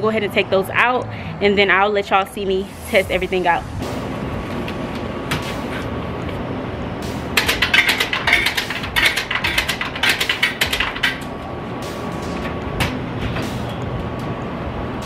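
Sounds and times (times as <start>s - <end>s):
steady background hum: 0.0s - 15.0s
coin mechanism clicks and rattles: 7.4s - 11.2s.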